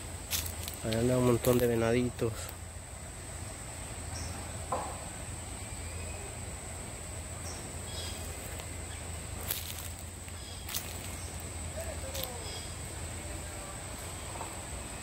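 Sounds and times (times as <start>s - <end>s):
high-pitched insect drone: 0.0s - 15.0s
faint chirps: 5.1s - 15.0s.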